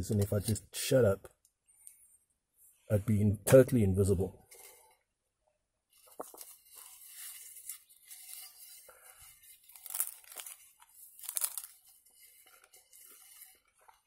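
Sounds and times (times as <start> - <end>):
flatbread tearing crackling: 6.0 - 14.0.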